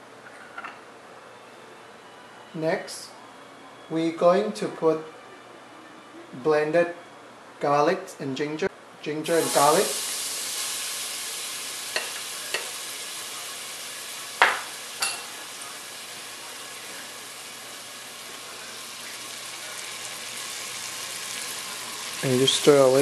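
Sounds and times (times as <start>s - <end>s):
garlic and ginger sizzling in oil: 9.3s - 23.0s.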